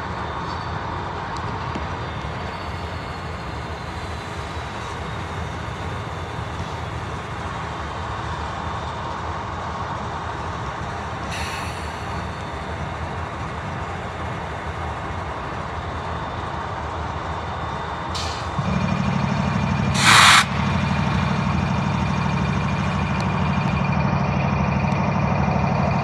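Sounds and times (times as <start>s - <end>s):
diesel locomotive engine running: 0.0s - 26.0s
air brakes hissing: 11.2s - 13.3s, 18.1s - 22.2s.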